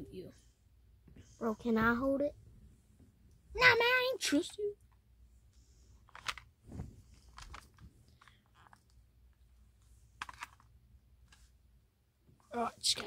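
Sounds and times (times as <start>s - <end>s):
toys handled rustling and clicking: 4.2s - 5.0s, 6.0s - 9.4s, 10.0s - 11.6s, 12.4s - 13.0s.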